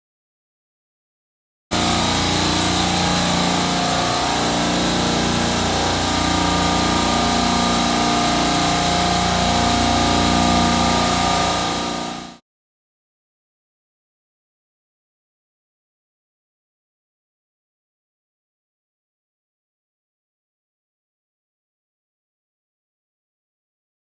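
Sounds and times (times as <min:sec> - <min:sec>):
vacuum pump running: 0:01.7 - 0:12.4.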